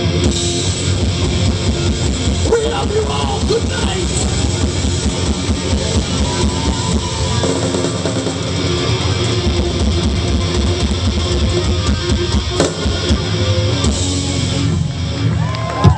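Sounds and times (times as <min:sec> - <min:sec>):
rock band playing live: 0:00.0 - 0:15.9.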